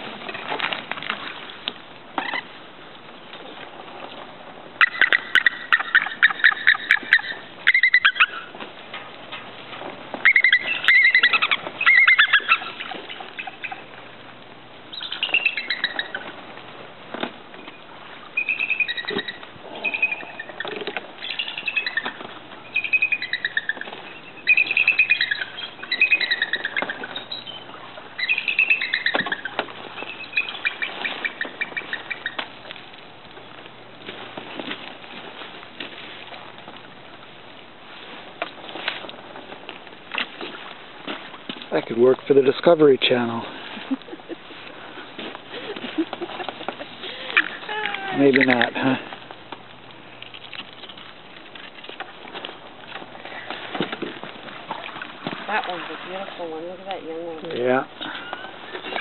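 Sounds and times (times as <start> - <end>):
eagles high piping calls: 4.8 - 8.6, 10.2 - 14.0, 14.8 - 16.5, 17.5 - 33.7, 43.2 - 49.4, 54.6 - 59.0.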